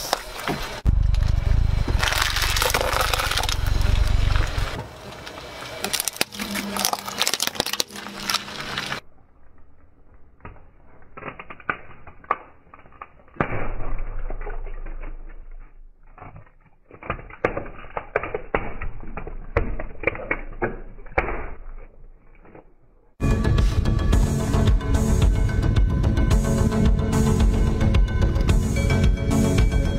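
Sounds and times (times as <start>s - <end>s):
low rumble: 0.6s - 9.6s, 23.2s - 29.9s
plastic toy crackling under tyre: 1.9s - 13.6s, 14.2s - 23.2s.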